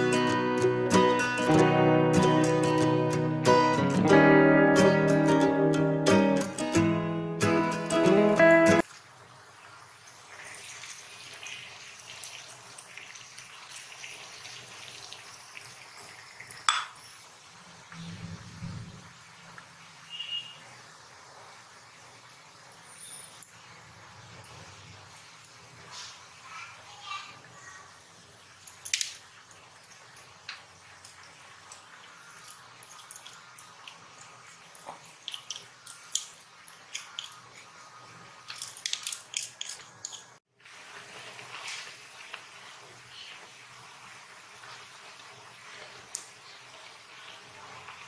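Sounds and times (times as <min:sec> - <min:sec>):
clay lid clinking on pot: 0:16.7 - 0:17.0
wood fire crackling: 0:28.6 - 0:48.0.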